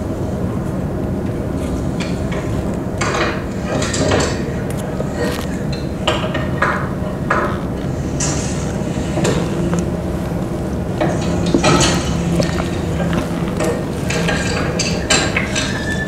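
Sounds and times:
wooden loom clacking: 0:06.1 - 0:16.0
low rumble: 0:06.8 - 0:15.9.

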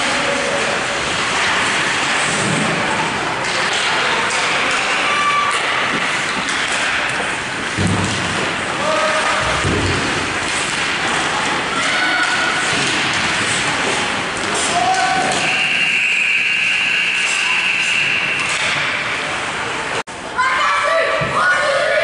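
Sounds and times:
skates and sticks on ice: 0:03.4 - 0:15.6
distant shouts: 0:08.8 - 0:09.6, 0:11.7 - 0:12.7.

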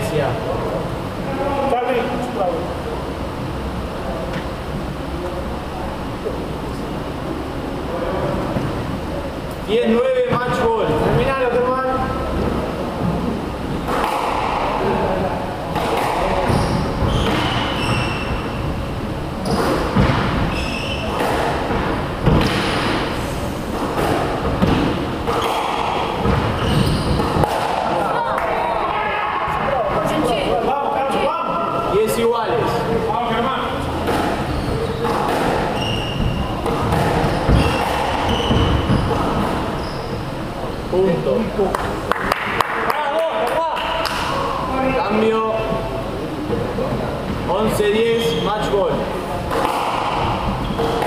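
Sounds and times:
squash ball hitting rackets and walls: 0:12.3 - 0:28.5, 0:33.8 - 0:39.8, 0:49.3 - 0:51.0
sneakers squeaking on wooden floor: 0:15.9 - 0:18.8, 0:19.4 - 0:23.0, 0:23.6 - 0:27.5, 0:33.8 - 0:40.5, 0:48.0 - 0:48.7, 0:49.7 - 0:51.0.

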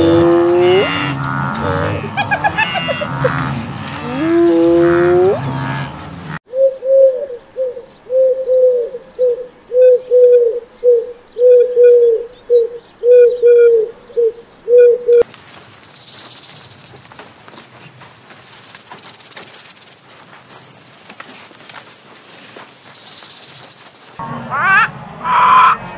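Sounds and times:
owl hooting: 0:06.5 - 0:15.2
insects buzzing and chirping: 0:06.5 - 0:24.2.

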